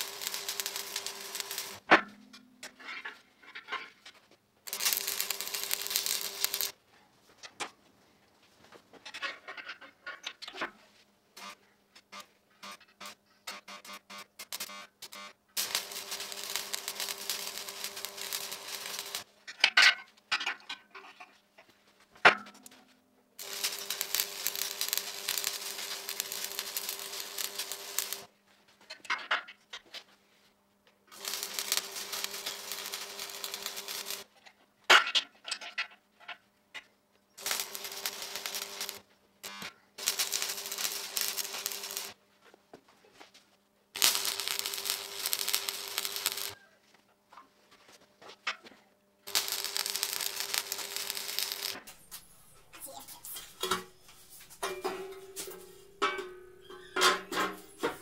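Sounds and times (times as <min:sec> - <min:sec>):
arc welding crackle: 0:00.0 - 0:01.9, 0:04.7 - 0:06.8, 0:11.4 - 0:19.3, 0:23.4 - 0:28.3, 0:31.1 - 0:34.3, 0:37.4 - 0:42.2, 0:44.0 - 0:46.6, 0:49.2 - 0:58.0.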